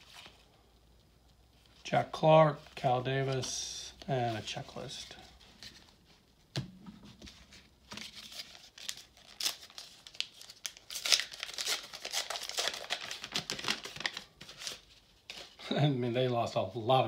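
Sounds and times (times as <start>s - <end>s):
wrapper crinkling and tearing: 8.0s - 15.6s.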